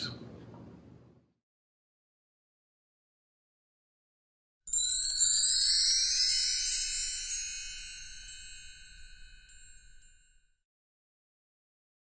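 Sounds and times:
shimmering chimes: 4.7 - 10.2.

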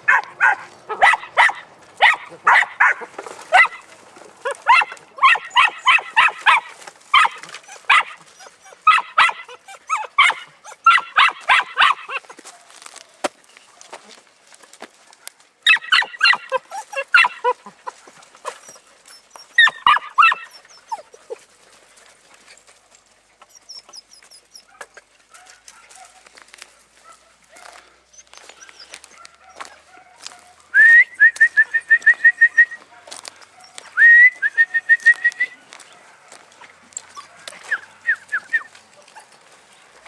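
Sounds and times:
puppies yapping and yelping: 0.0 - 12.6, 15.6 - 26.3, 27.1 - 30.8, 31.7 - 40.0
person whistling: 30.8 - 32.8, 34.0 - 35.6.

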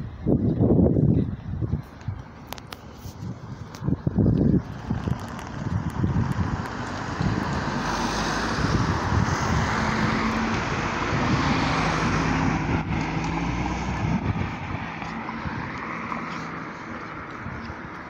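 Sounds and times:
vehicle engine passing: 4.1 - 17.6.

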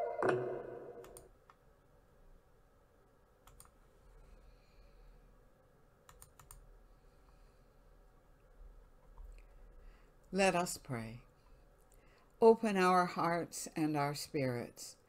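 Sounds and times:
sung note: 0.0 - 1.2
low room hum: 0.0 - 15.0
computer keyboard clicks: 3.4 - 3.8, 6.1 - 6.6.

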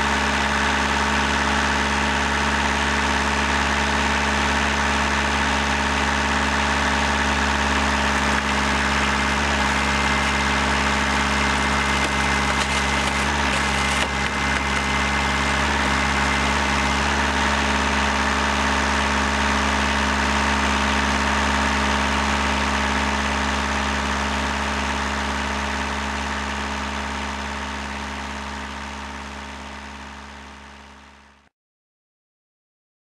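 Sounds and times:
hydraulic power unit humming: 0.0 - 29.6
ram pressing tire off rim: 7.9 - 16.7.

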